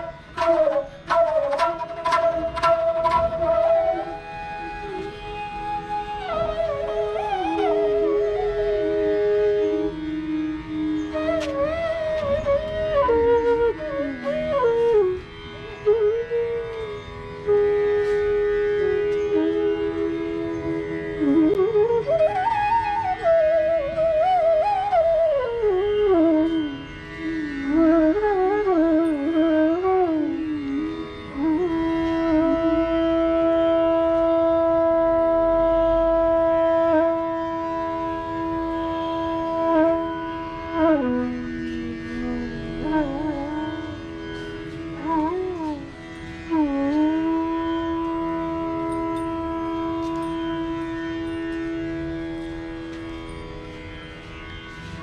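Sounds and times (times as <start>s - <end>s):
bamboo flute melody: 0.0s - 55.0s.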